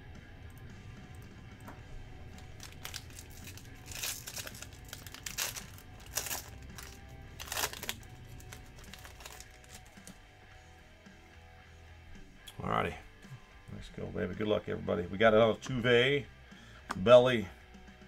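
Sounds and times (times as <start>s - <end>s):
background music: 0.0s - 18.0s
foil wrapper crinkling and tearing: 2.3s - 10.2s.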